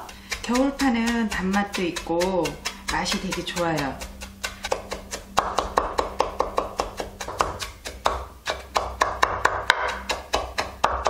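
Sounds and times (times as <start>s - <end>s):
knife chopping on wooden board: 0.0s - 11.0s.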